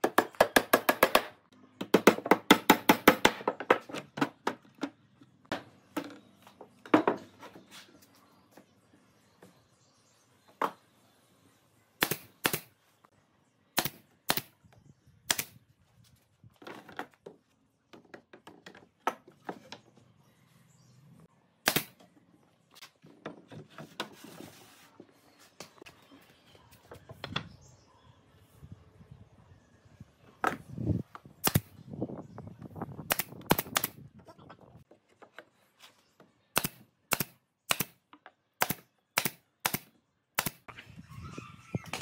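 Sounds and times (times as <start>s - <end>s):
nail gun firing: 12.0s - 12.7s, 13.8s - 14.5s, 15.3s - 15.6s, 21.6s - 22.0s, 31.4s - 31.7s, 33.1s - 34.0s, 36.6s - 38.0s, 38.6s - 40.6s.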